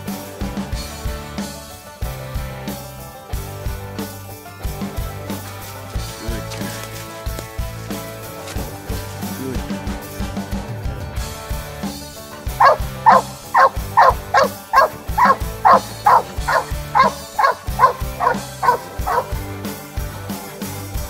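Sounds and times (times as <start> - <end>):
dog barking: 12.6 - 19.4.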